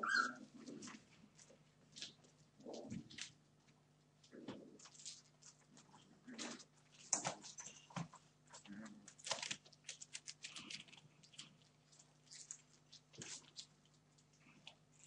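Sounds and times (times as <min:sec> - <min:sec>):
faint steady hum: 0:00.0 - 0:15.0
puppy claws scratching on paper: 0:04.3 - 0:15.0.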